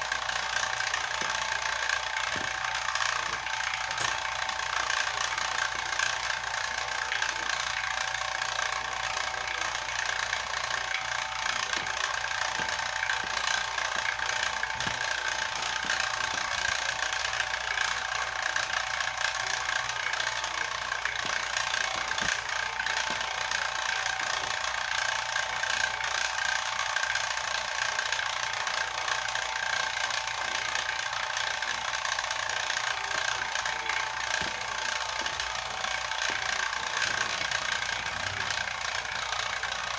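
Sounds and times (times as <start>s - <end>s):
vacuum pump humming: 0.0s - 39.9s
steady whining tone: 30.9s - 39.9s.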